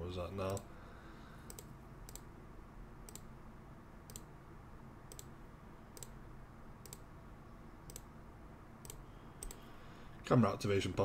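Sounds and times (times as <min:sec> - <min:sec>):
computer mouse clicking: 0:01.5 - 0:02.3, 0:03.1 - 0:03.3, 0:04.1 - 0:04.3, 0:05.1 - 0:05.3, 0:06.0 - 0:06.2, 0:06.8 - 0:07.1, 0:07.8 - 0:08.1, 0:08.8 - 0:09.6.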